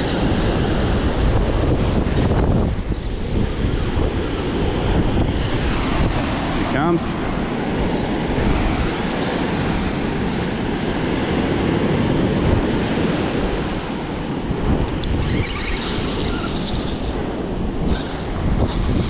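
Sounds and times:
ocean surf breaking: 0.0 - 19.0
wind buffeting microphone: 0.0 - 19.0.

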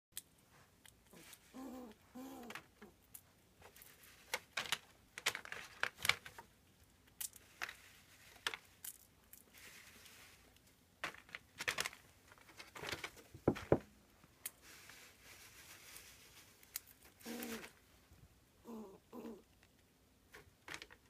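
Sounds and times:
paper bag rustling and crinkling: 3.6 - 6.5, 9.4 - 13.8, 14.6 - 17.8.

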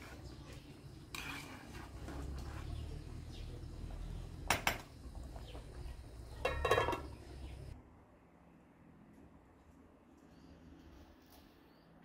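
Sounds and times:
metal ladle stirring in pot: 0.0 - 3.2
ladle clattering on pot: 6.4 - 7.2.

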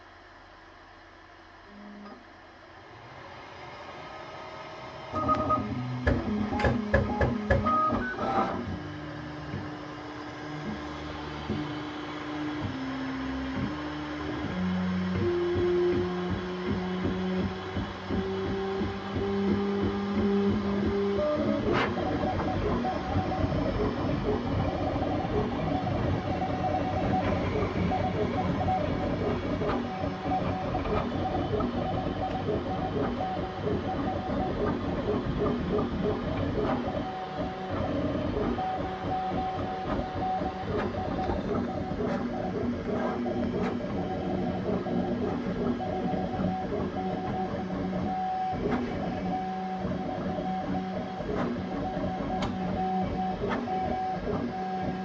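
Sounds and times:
mechanical running noise: 1.6 - 55.0
printer motors whirring: 1.6 - 55.0.

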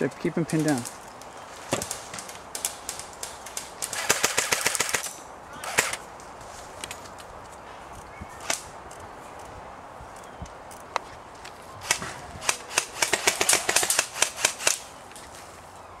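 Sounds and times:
automatic airsoft gun burst: 3.9 - 5.0, 5.6 - 6.0, 11.8 - 14.8.

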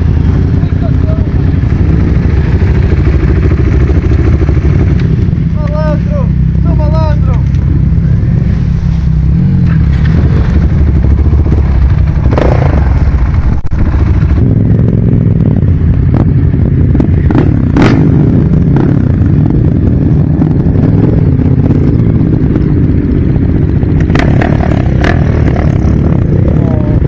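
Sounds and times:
motorcycle engine rumble: 0.0 - 27.0.

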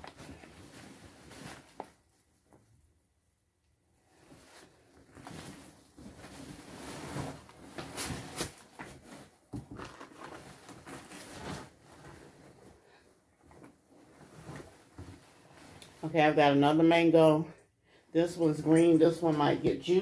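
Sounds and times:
rustling and scraping in cardboard box: 4.2 - 12.9.

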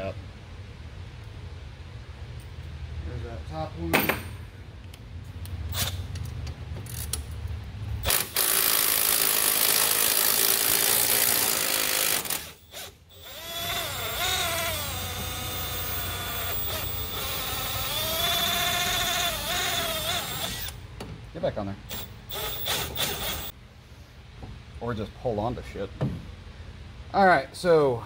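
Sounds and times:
electric ratchet motor whine: 8.0 - 20.8, 21.9 - 23.5.

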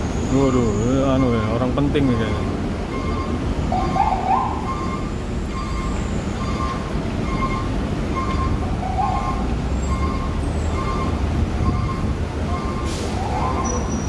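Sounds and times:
traffic rumbling: 0.0 - 14.0
electronic beep: 4.6 - 12.9.

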